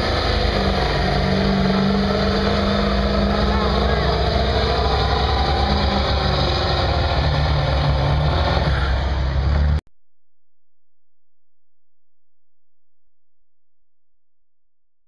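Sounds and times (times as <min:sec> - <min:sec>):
diesel truck engine at full throttle: 0:00.0 - 0:09.8.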